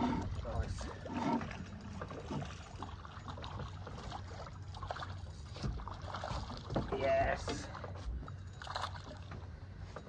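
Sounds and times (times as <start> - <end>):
short splashes: 0.0 - 7.9
low steady rumble: 0.0 - 10.0
water lapping against boat hull: 0.0 - 10.0.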